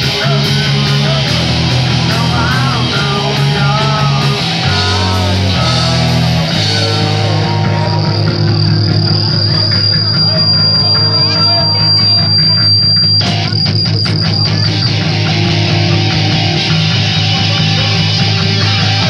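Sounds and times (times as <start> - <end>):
drum kit with cymbals: 0.0 - 10.6
steady high-pitched tone: 0.0 - 16.9
electric bass: 0.0 - 19.0
electric guitar: 0.0 - 19.0.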